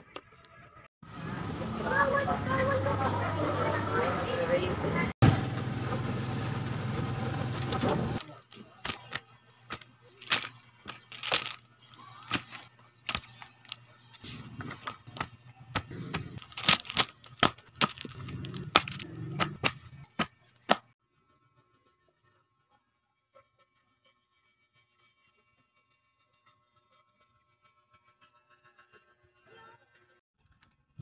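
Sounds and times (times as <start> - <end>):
street noise: 0.0 - 20.9
plastic wrapping crackling: 8.3 - 13.8, 16.4 - 19.1.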